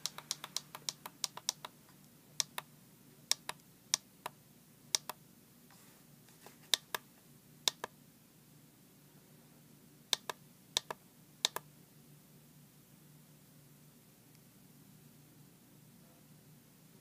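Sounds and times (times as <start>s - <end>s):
oscilloscope buttons clicking: 0.0s - 1.8s, 2.4s - 2.7s, 3.3s - 4.4s, 5.0s - 5.2s, 7.7s - 7.9s, 10.2s - 11.6s.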